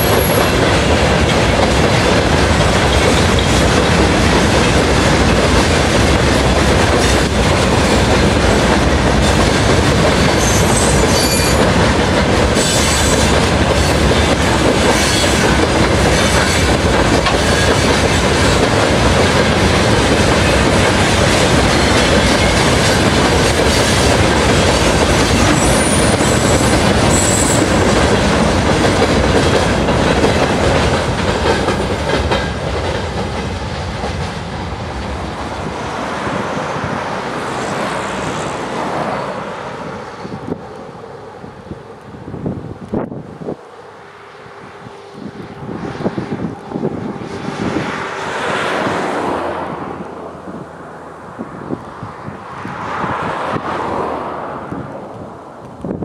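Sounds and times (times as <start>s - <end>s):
high wheel squeals: 0.0s - 0.6s, 10.3s - 11.7s, 12.6s - 14.1s, 25.2s - 27.9s
freight train rolling past: 0.0s - 56.0s.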